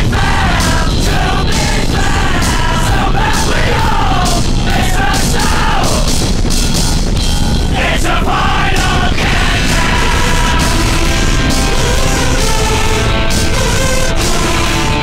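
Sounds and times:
driving drums: 0.0 - 15.0
heavy rock music: 0.0 - 15.0
person singing: 7.8 - 15.0.

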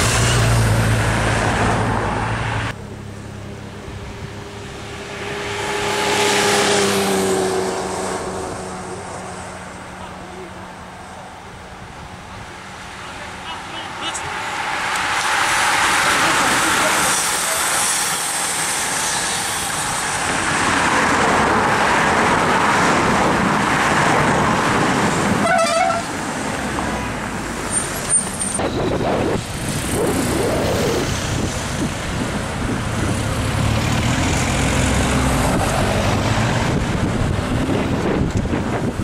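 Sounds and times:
cars driving past: 0.0 - 39.0
car horn toot: 25.4 - 26.1.

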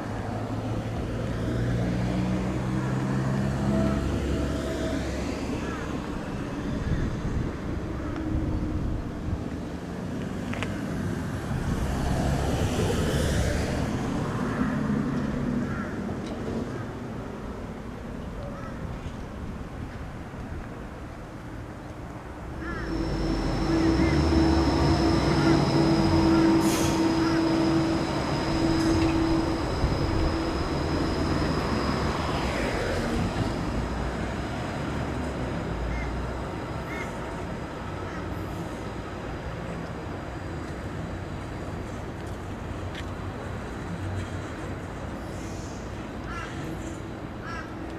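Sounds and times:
tram drive humming: 0.0 - 47.9
wheel-on-rail rumble: 0.0 - 47.9
wind noise on microphone: 6.4 - 14.4
thin high whine: 22.4 - 35.8
vehicle passing: 22.5 - 35.5.

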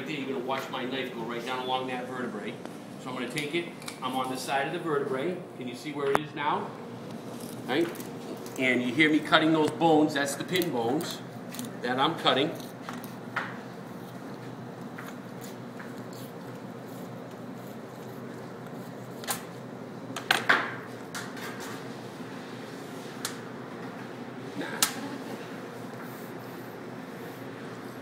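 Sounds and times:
room hum: 0.0 - 28.0.

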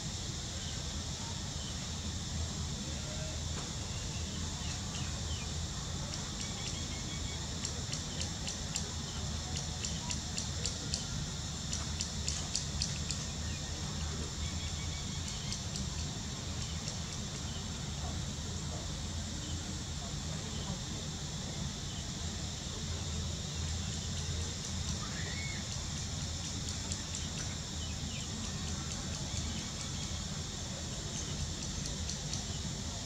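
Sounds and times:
insect chorus trilling: 0.1 - 33.0
rapid high ticks: 7.6 - 13.2, 25.7 - 27.5, 31.2 - 32.6.

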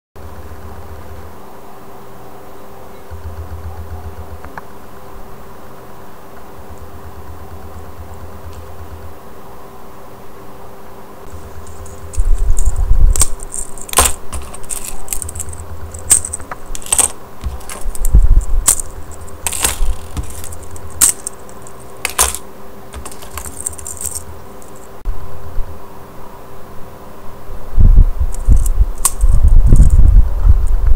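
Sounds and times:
low handling rumble: 3.0 - 5.5, 11.2 - 25.7
metal parts clinking and clicking: 11.3 - 25.0, 28.3 - 30.0
key rings jangling: 11.4 - 24.9.

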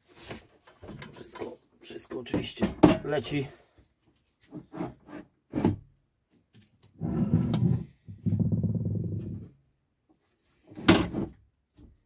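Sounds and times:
heavy object scraping across workbench: 7.0 - 9.4.

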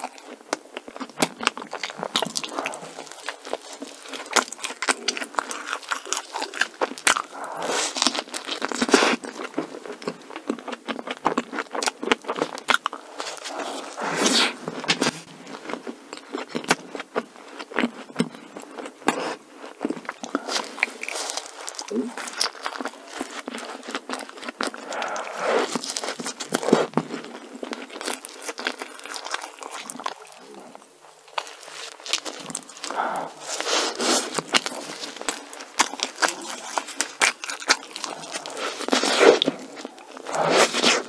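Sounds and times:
person chewing: 0.0 - 41.0
biting into doughnut: 16.1 - 41.0.

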